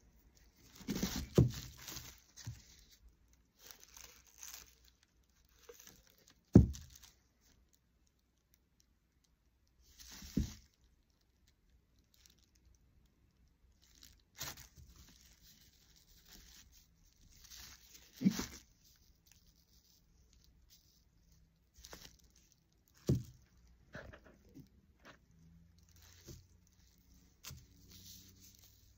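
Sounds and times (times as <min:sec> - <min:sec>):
paper crinkling and rustling: 0:00.1 - 0:07.6, 0:13.8 - 0:28.9.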